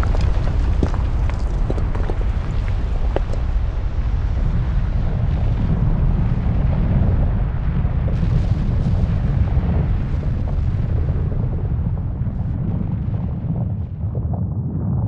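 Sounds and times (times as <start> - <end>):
faint crackling: 0.0 - 5.6
deep rumble: 0.0 - 15.0.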